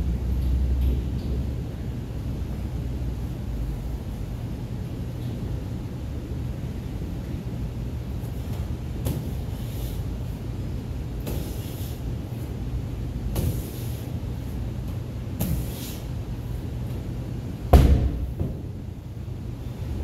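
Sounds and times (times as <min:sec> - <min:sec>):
steady low hum: 0:00.0 - 0:20.0
medicine ball slapping a wall: 0:13.3 - 0:13.8, 0:14.9 - 0:15.8, 0:17.7 - 0:18.8
ball thud on rubber floor: 0:17.7 - 0:18.8.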